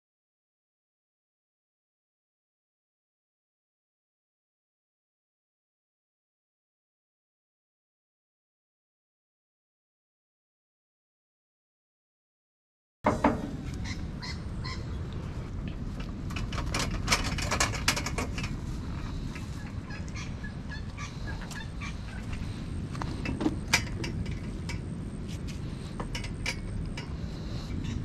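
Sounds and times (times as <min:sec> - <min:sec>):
wind rumble on microphone: 0:13.1 - 0:28.0.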